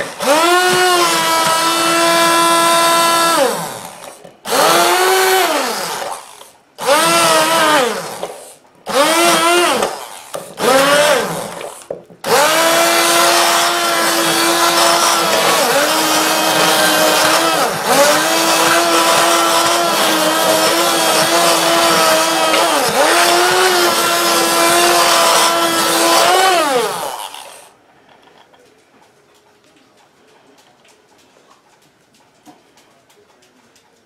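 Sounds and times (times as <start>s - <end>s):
immersion blender motor whine: 0.0s - 27.7s.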